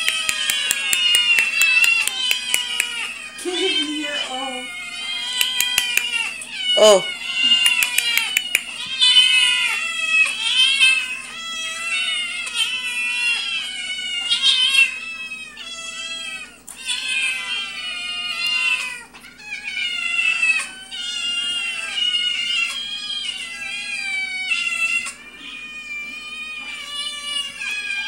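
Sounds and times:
cats and kittens meowing: 0:00.0 - 0:28.0.

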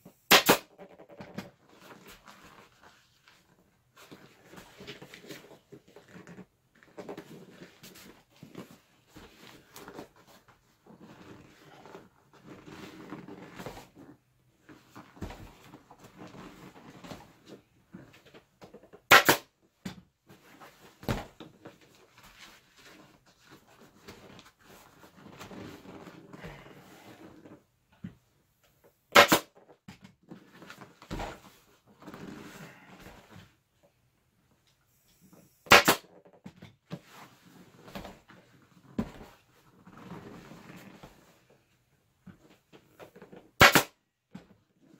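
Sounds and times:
sharp loud bangs: 0:00.3 - 0:00.6.

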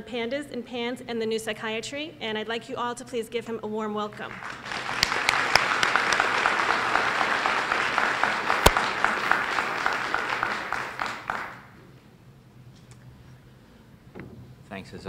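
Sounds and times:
audience applauding: 0:04.3 - 0:11.8.

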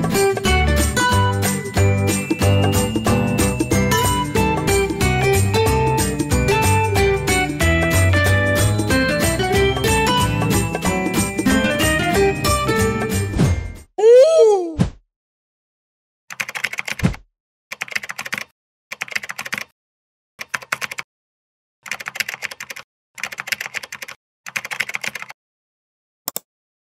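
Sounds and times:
keyboard typing: 0:16.3 - 0:19.7, 0:20.4 - 0:21.1, 0:21.8 - 0:25.4.

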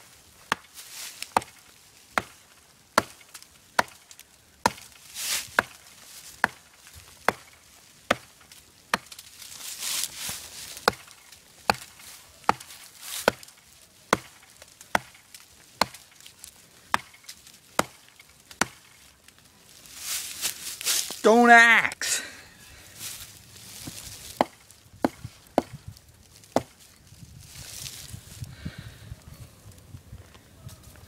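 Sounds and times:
axe chopping tree trunk: 0:00.4 - 0:09.3, 0:10.0 - 0:19.0, 0:23.7 - 0:26.8.

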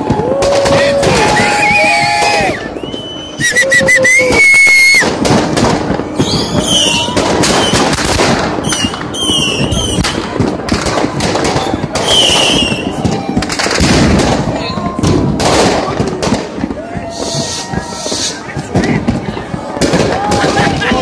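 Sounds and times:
firecrackers banging and crackling: 0:00.0 - 0:21.0
high whistling tones falling in pitch: 0:01.6 - 0:05.0.

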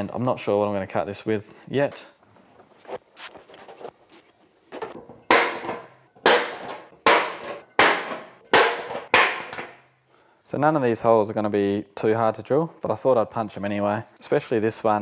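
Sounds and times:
centre punch striking sheet metal: 0:05.2 - 0:09.8.

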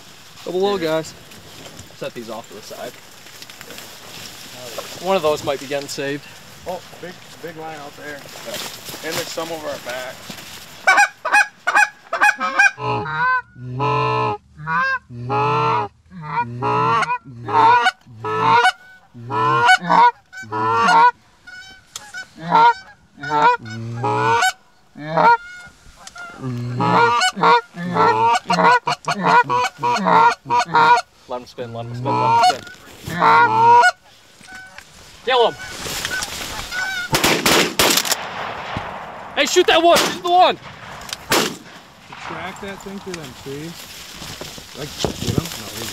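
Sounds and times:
goose honking and clucking: 0:10.8 - 0:37.6.

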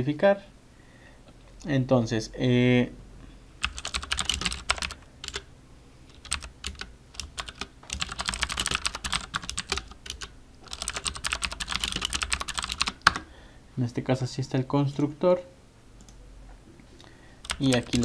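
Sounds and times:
typing on computer keyboard: 0:03.6 - 0:05.5, 0:06.1 - 0:13.3, 0:17.4 - 0:18.0.

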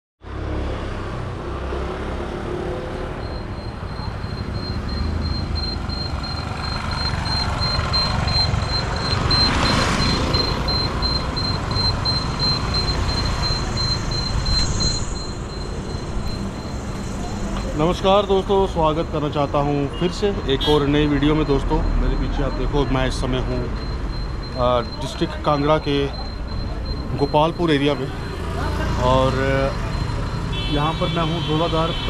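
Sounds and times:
road traffic rumbling: 0:00.2 - 0:32.0
vehicle passing: 0:00.3 - 0:19.6, 0:21.3 - 0:30.6
high rapidly pulsing tone: 0:03.2 - 0:18.3.

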